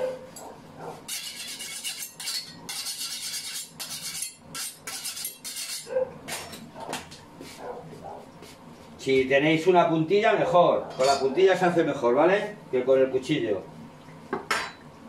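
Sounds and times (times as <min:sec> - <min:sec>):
knife sharpening rasps: 0:01.1 - 0:05.9.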